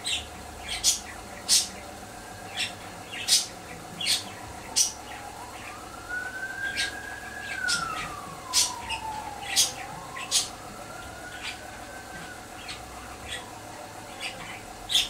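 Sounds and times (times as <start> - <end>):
budgerigar scratchy calls: 0.0 - 1.8, 14.2 - 15.0
faint siren: 0.0 - 15.0.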